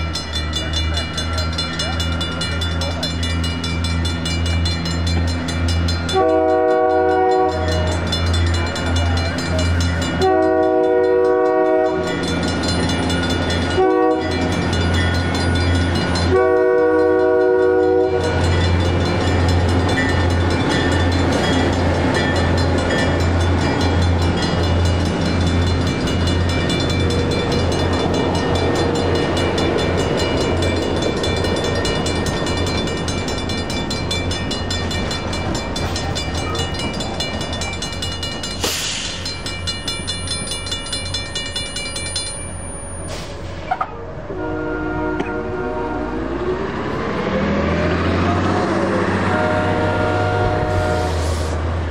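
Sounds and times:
crossing bell ringing: 0.0 - 51.0
train rumbling past: 0.0 - 51.9
locomotive horn: 6.1 - 8.1, 10.1 - 12.3, 13.7 - 14.5, 16.0 - 18.5, 43.6 - 46.7, 47.7 - 51.8.

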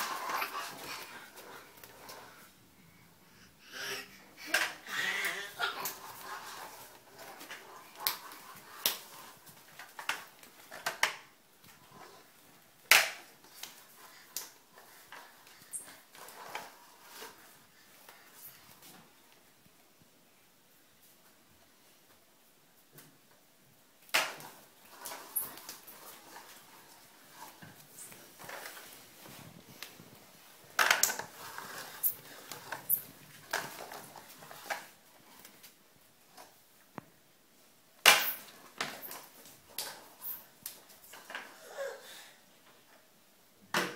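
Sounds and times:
baby vocalizing: 3.4 - 6.0.

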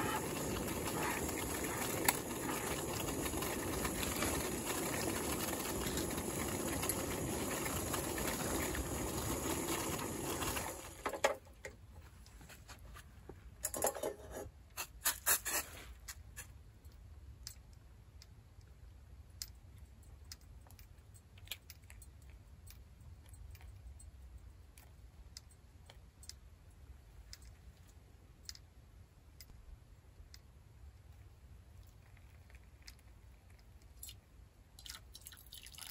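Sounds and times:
gas stove burner hissing: 0.0 - 11.0.

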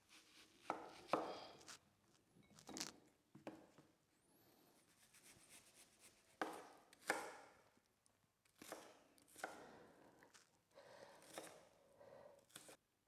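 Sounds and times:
knife chopping onion on wooden board: 0.6 - 1.7, 6.3 - 7.6, 8.5 - 10.4, 11.2 - 11.6.

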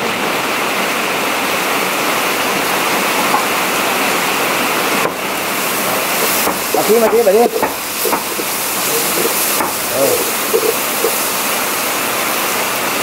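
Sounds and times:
meat sizzling in oil: 2.8 - 13.0
light crackles: 5.0 - 13.0.

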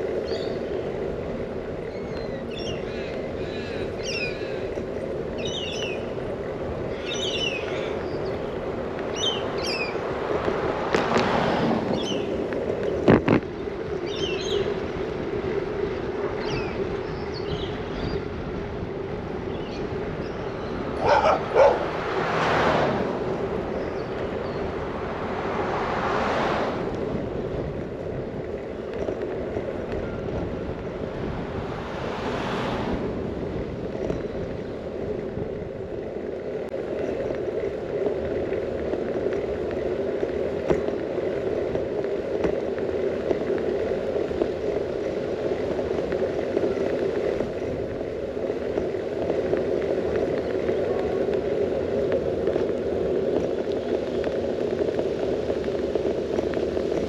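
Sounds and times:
bicycle rolling on asphalt: 0.0 - 57.0
cars passing: 0.0 - 57.0
birds chirping: 0.2 - 1.0, 1.8 - 10.1, 11.9 - 14.8, 16.3 - 18.3, 19.4 - 22.0, 23.6 - 25.1
dog barking: 21.0 - 21.9.

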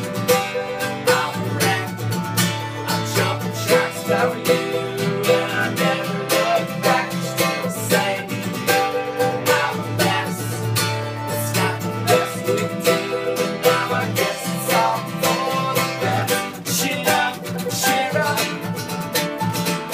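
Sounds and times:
men singing: 0.0 - 18.9
mandolin: 0.0 - 19.9
strummed acoustic guitar: 0.0 - 19.9.

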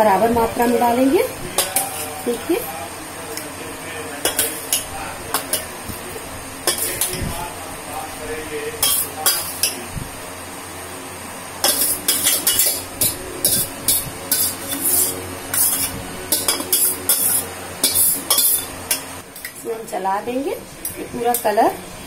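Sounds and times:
metal spoon clinking in ceramic bowl: 11.6 - 18.7.

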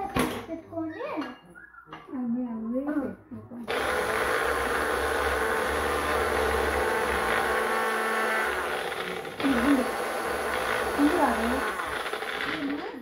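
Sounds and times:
blender motor grinding: 3.7 - 13.0.

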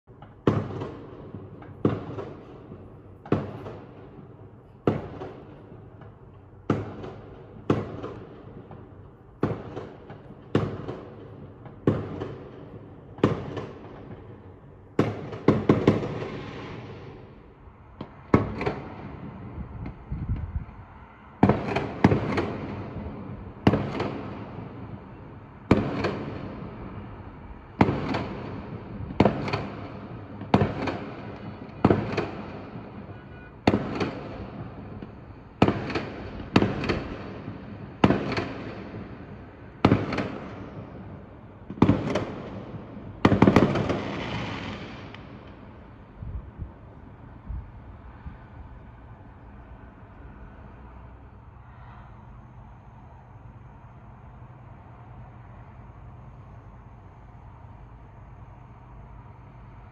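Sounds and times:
fireworks bursting: 0.1 - 20.5, 21.4 - 46.6.

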